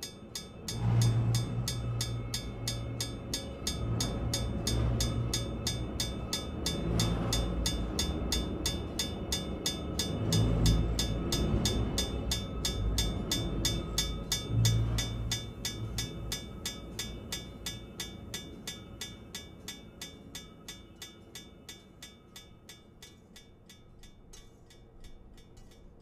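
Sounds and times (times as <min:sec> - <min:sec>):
low rumble: 0:00.0 - 0:19.3
rapid even ticking: 0:00.0 - 0:26.0.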